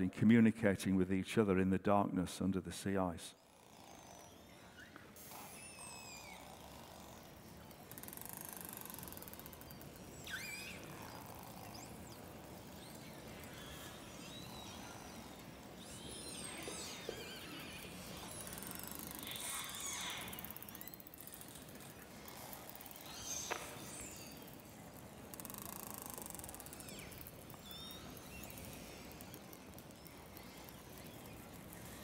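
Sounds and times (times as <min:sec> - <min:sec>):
echolocation clicks: 0:17.6 - 0:32.0.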